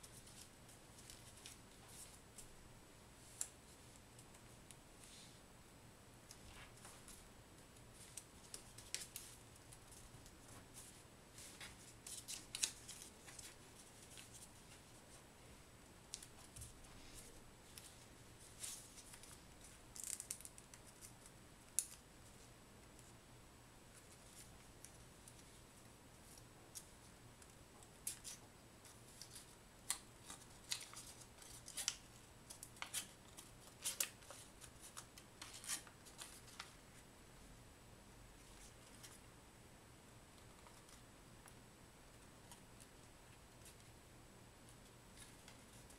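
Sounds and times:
paper crinkling and rustling: 7.9s - 15.0s, 16.2s - 22.0s, 28.0s - 37.0s.

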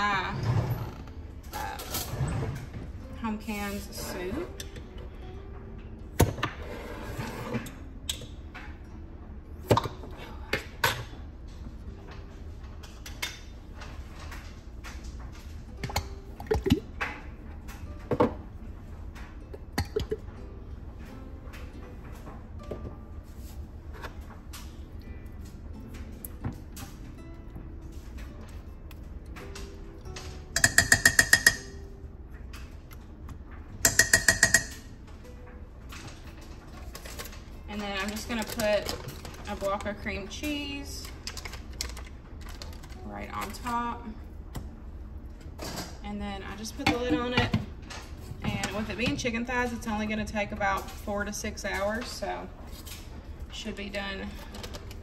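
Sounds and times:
metal spoon tapping stoneware crock: 33.9s - 34.8s.

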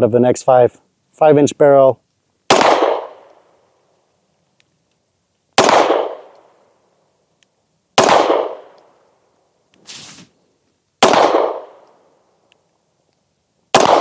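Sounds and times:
pistol shots with echo: 2.5s - 3.3s, 5.6s - 6.5s, 8.0s - 8.8s, 11.0s - 11.8s, 13.7s - 14.0s.

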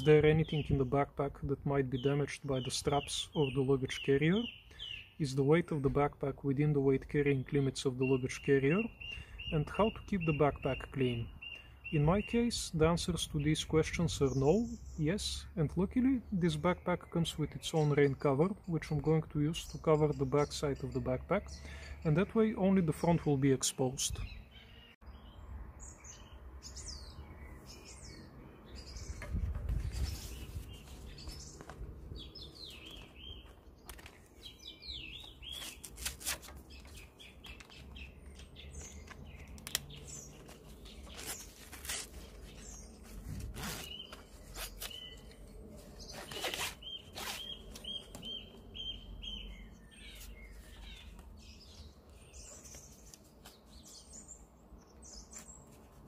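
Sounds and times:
small birds chirping: 0.0s - 56.0s
webbing rustling through buckle: 29.1s - 48.2s.

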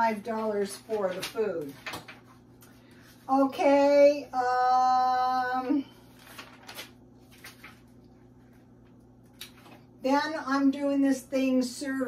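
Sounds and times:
papers rustling: 0.2s - 3.2s, 6.0s - 9.8s.

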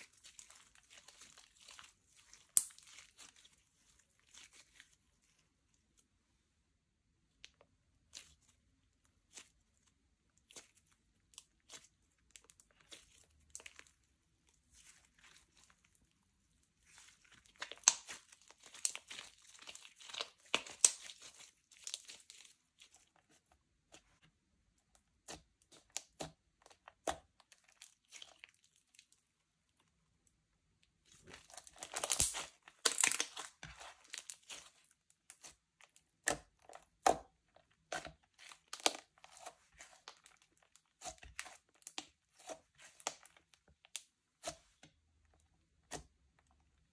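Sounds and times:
slime crackling and popping: 0.0s - 5.0s, 16.8s - 23.4s, 31.1s - 44.6s.

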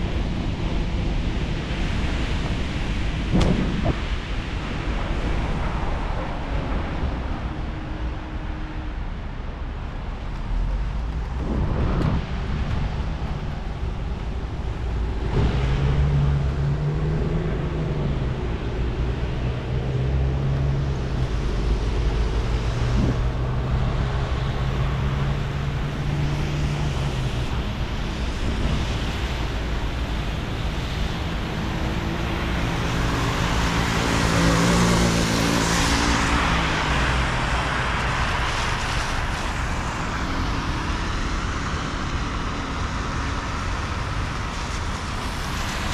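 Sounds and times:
engines humming: 0.0s - 38.5s
low rumble: 2.0s - 30.3s.

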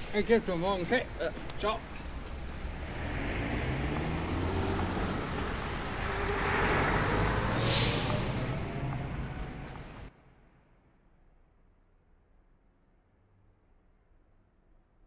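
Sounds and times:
heavy vehicle engine rumble: 1.1s - 10.1s
air brake hiss: 7.4s - 8.5s.

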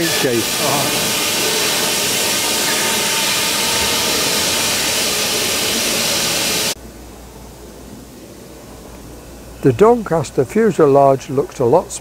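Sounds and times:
loud rushing hiss: 0.0s - 10.1s.

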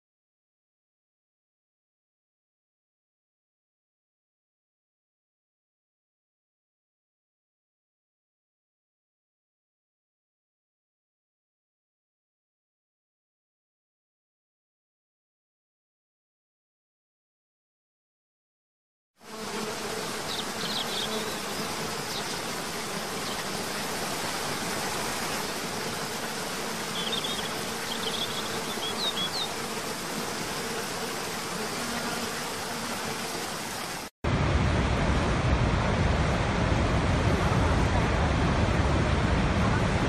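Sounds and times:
faint buzz: 19.2s - 34.1s
deep water rush: 20.0s - 28.8s, 32.6s - 40.0s
falling water rushing: 20.0s - 30.6s, 32.5s - 40.0s.

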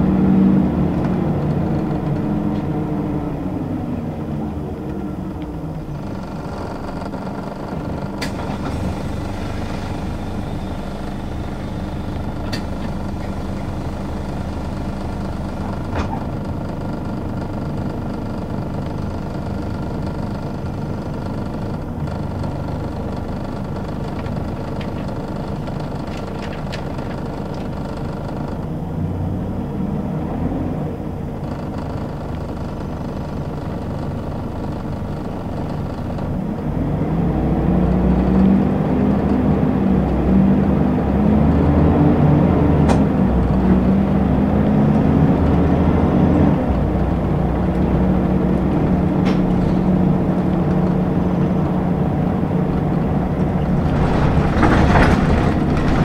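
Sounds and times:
bus diesel engine running: 0.0s - 56.0s
interior rattle clicks: 4.8s - 28.7s, 31.4s - 36.7s, 46.5s - 56.0s.

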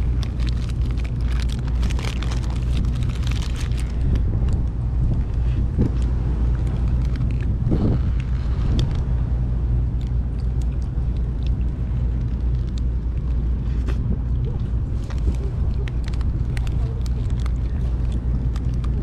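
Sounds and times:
paper wrapper crinkling: 0.0s - 5.4s, 12.0s - 19.0s
steady low rumble: 0.0s - 19.0s.

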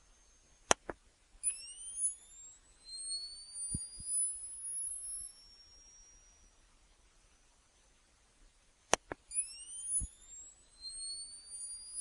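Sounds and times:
flash recharging whine: 0.0s - 7.4s, 8.9s - 12.0s
camera flash clicks: 8.9s - 12.0s.

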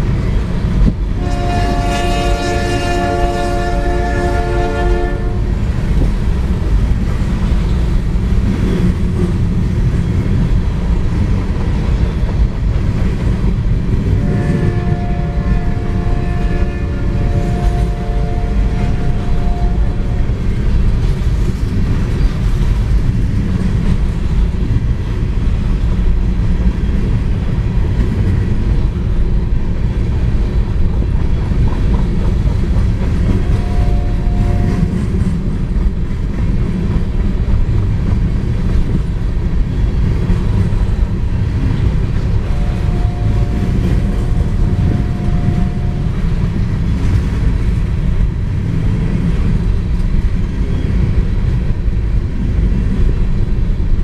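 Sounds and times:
train wheels rumbling on rail: 0.0s - 54.0s
steady horn tone: 1.2s - 5.5s, 14.1s - 20.4s, 33.3s - 35.1s, 42.4s - 46.4s.

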